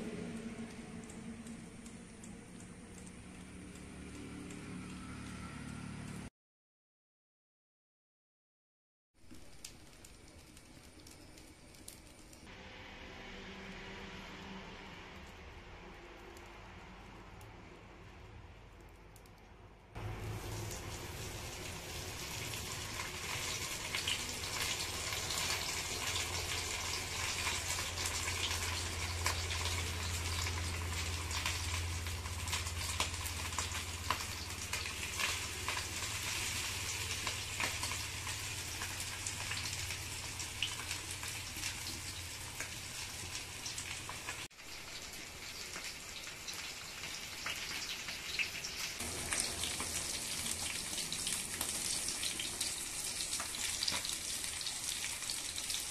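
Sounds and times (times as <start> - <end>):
fish frying in hot oil: 9.2 - 12.5, 20.0 - 55.9.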